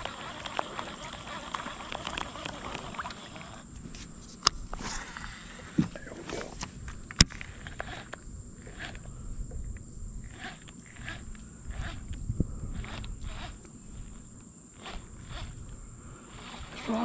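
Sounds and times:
fishing reel being cranked: 0:00.0 - 0:03.8, 0:07.1 - 0:17.0
high-pitched insect drone: 0:07.3 - 0:17.0.

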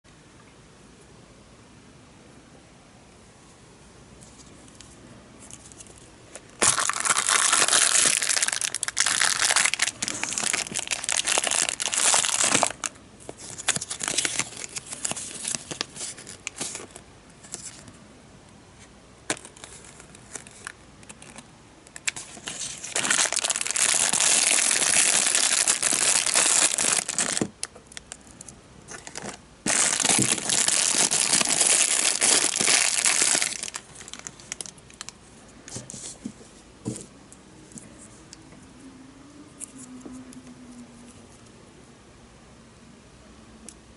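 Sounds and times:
plastic bag crinkling and tearing: 0:05.8 - 0:17.8, 0:19.3 - 0:28.3, 0:28.9 - 0:35.2.

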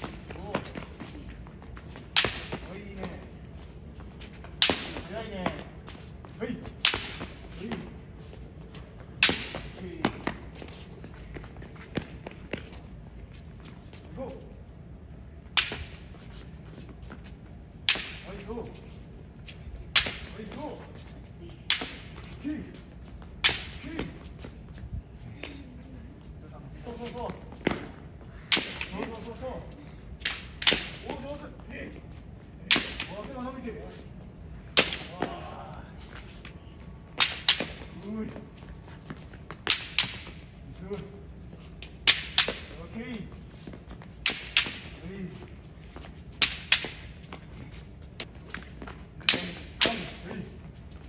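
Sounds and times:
bamboo sword cracks: 0:02.1 - 0:02.6, 0:04.6 - 0:05.0, 0:06.8 - 0:07.3, 0:09.2 - 0:09.6, 0:15.5 - 0:15.9, 0:17.8 - 0:18.2, 0:19.9 - 0:20.3, 0:21.7 - 0:22.1, 0:23.4 - 0:23.8, 0:28.5 - 0:29.0, 0:30.2 - 0:31.1, 0:32.7 - 0:33.2, 0:34.7 - 0:35.4, 0:37.2 - 0:37.9, 0:39.6 - 0:40.4, 0:42.0 - 0:42.7, 0:44.2 - 0:44.9, 0:46.4 - 0:47.1, 0:49.2 - 0:50.2
bamboo sword strikes: 0:02.2 - 0:02.6, 0:04.6 - 0:05.0, 0:06.8 - 0:07.3, 0:09.2 - 0:09.7, 0:17.9 - 0:18.2, 0:20.0 - 0:20.3, 0:32.7 - 0:33.2, 0:42.1 - 0:42.7, 0:44.2 - 0:44.9, 0:49.2 - 0:50.2.

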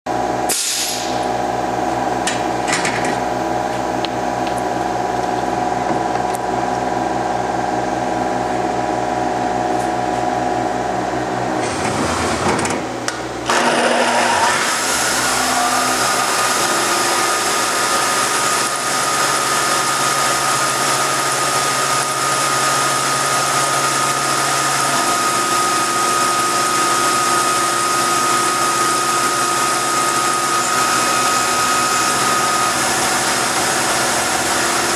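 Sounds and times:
high whine of cutting: 0:00.1 - 0:34.9
coolant hissing: 0:00.5 - 0:01.2, 0:14.6 - 0:34.9
milling machine humming: 0:01.3 - 0:34.9.

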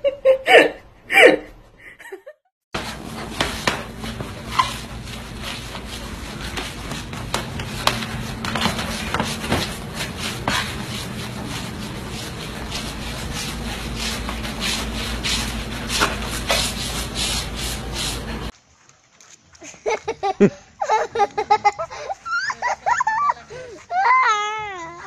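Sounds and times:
mop scraping across wooden floor: 0:02.8 - 0:18.6.

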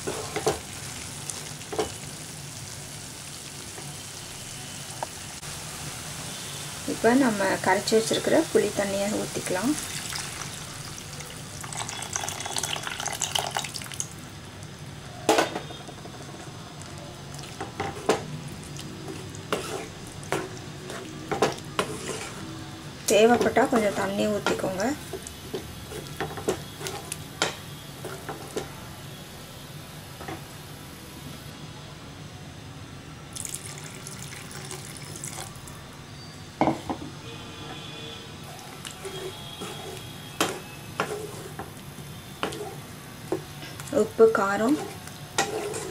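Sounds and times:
water pouring into a pan: 0:09.8 - 0:14.2, 0:33.4 - 0:35.7
wooden spatula knocking pan: 0:23.3 - 0:24.8.

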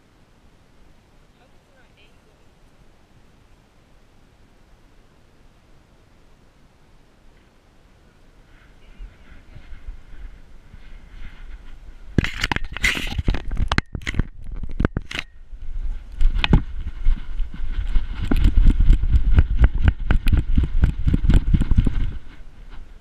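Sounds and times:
camera mount clattering and scraping: 0:12.2 - 0:15.4
dog running on grass: 0:15.8 - 0:23.0.

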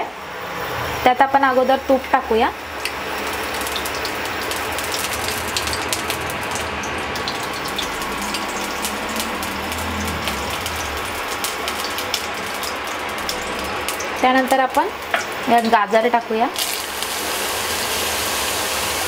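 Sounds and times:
butter sizzling in a pan: 0:02.7 - 0:19.0.

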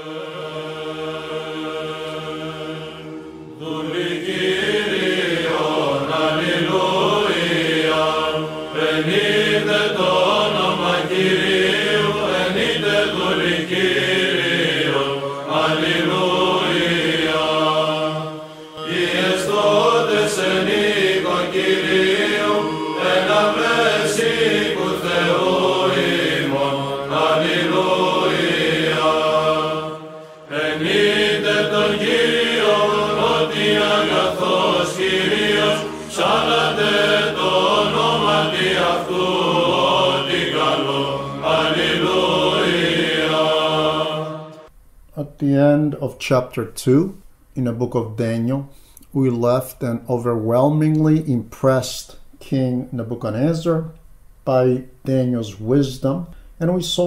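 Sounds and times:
sung chant: 0:00.0 - 0:44.7.

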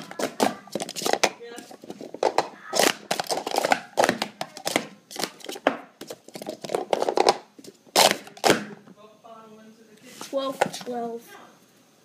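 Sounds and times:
plastic cups clattering: 0:00.0 - 0:08.8.

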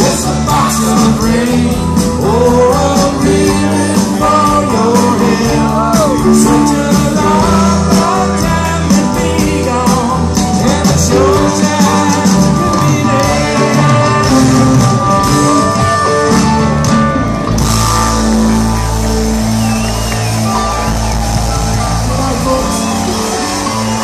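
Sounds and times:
bending lead guitar lines: 0:00.0 - 0:24.0
live rock band playing: 0:00.0 - 0:24.0.

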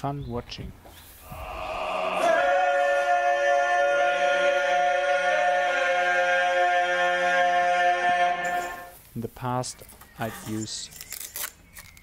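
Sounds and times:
sustained choir-like chord: 0:01.3 - 0:08.9.

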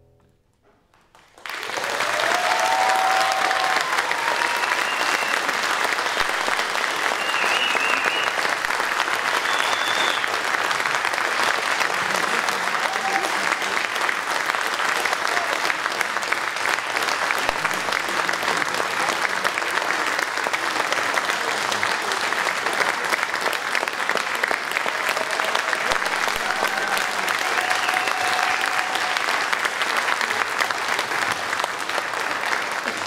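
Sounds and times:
audience applauding: 0:00.9 - 0:33.0.

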